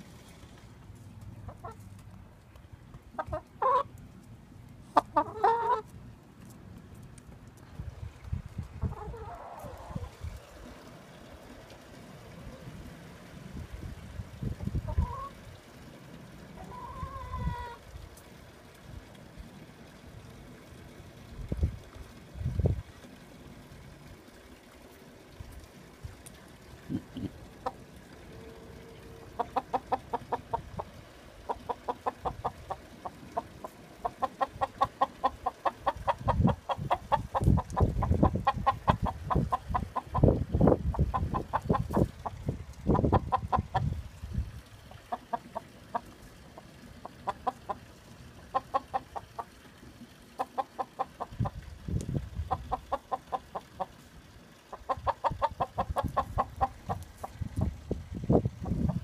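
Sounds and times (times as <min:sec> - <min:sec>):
chickens clucking: 0:01.3 - 0:02.0, 0:03.1 - 0:04.0, 0:04.8 - 0:05.9, 0:08.3 - 0:10.8, 0:14.4 - 0:15.4, 0:16.6 - 0:17.8, 0:26.8 - 0:49.7, 0:50.3 - 0:59.0.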